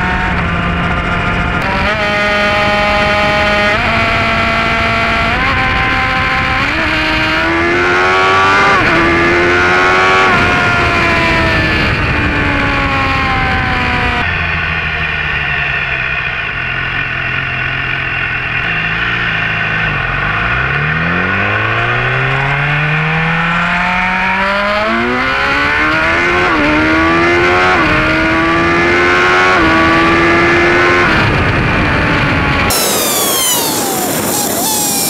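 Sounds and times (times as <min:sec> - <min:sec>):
motorcycle engine accelerating: 0:00.0 - 0:35.0
wind rushing: 0:31.0 - 0:35.0.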